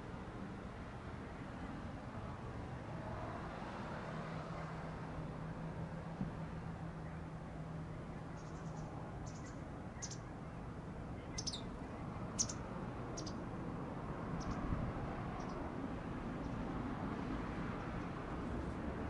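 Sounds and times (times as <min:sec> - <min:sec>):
small bird chirping: 0:08.3 - 0:10.3, 0:11.2 - 0:13.4, 0:14.4 - 0:14.6.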